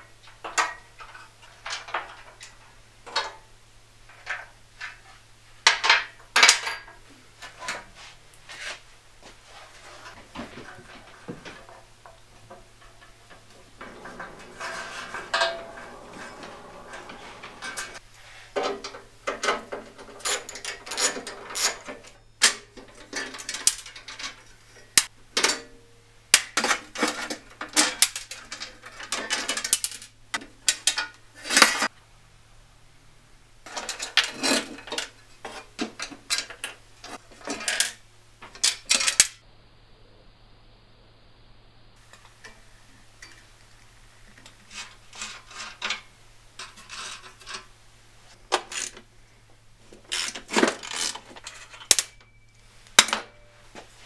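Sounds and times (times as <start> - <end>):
metal bolts clinking: 11.1 - 18.0.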